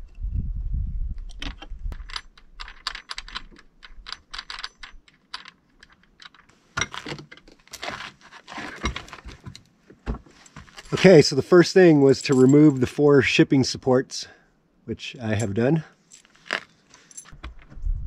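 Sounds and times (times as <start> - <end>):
scraping and rattling: 1.3 - 9.6.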